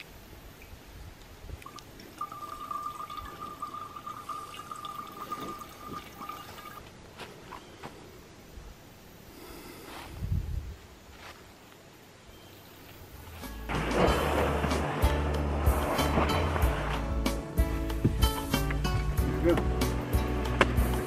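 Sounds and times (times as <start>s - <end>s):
water trickling into metal bottle: 1.6s - 6.8s
steady ringing tone: 2.2s - 6.8s
low rumble: 13.7s - 18.3s.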